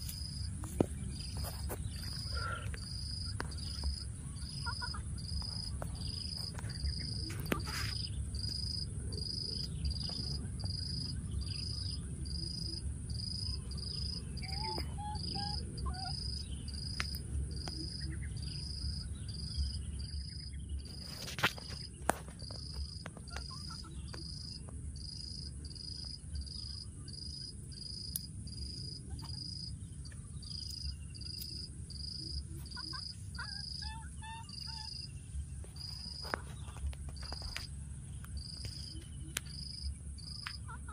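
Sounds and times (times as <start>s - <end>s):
insects chirping: 0.0s - 40.9s.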